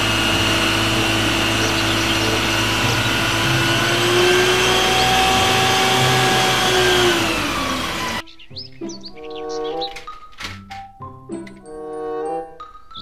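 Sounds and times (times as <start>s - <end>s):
low hum: 0.0s - 8.2s
pump whine: 0.0s - 8.2s
water cannon rushing: 0.0s - 8.2s.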